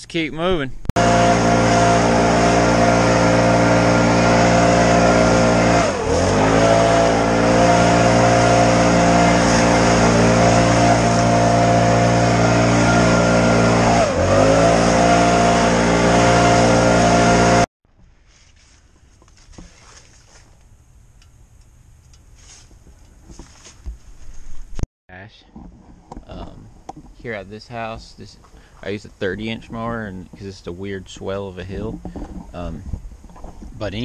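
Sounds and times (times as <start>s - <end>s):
leaf blower engine running: 1.0s - 17.7s.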